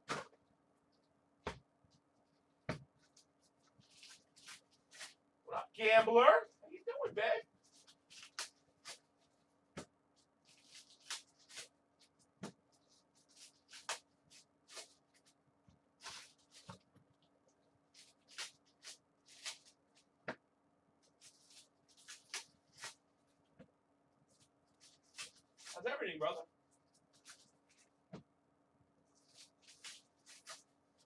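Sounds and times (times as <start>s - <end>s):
faint steady hum: 0.0s - 31.0s
cards and wrappers rustling: 3.0s - 5.2s, 7.6s - 9.5s, 10.1s - 15.4s, 16.0s - 16.9s, 17.9s - 20.1s, 21.0s - 23.0s, 24.3s - 25.8s, 26.8s - 27.9s, 29.1s - 31.0s.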